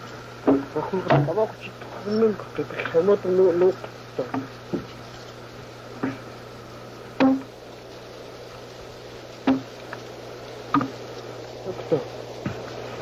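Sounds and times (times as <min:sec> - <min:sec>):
steady low hum: 0:00.0 - 0:13.0
axe striking log: 0:07.2 - 0:07.5, 0:09.5 - 0:09.7.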